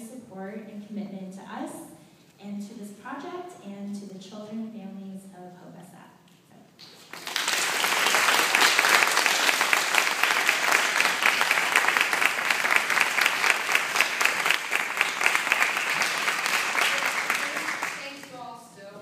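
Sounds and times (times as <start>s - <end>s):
audience applauding: 6.8s - 18.4s.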